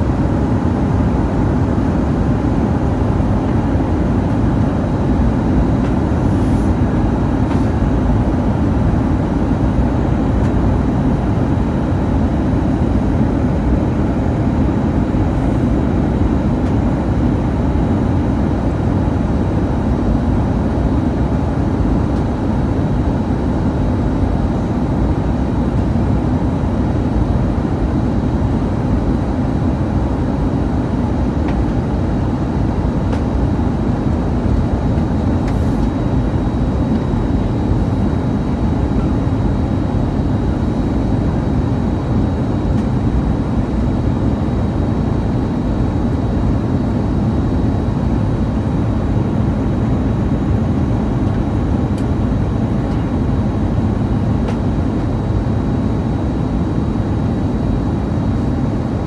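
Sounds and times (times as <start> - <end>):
airliner cabin rumble: 30.0 - 55.8.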